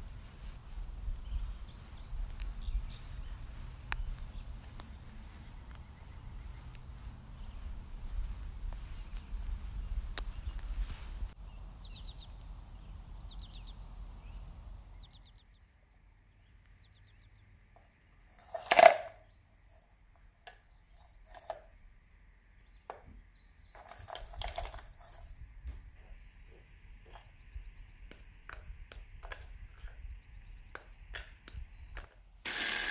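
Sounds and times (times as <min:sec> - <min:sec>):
cookies clicking and rattling: 0:23.7 - 0:25.3, 0:28.1 - 0:30.1.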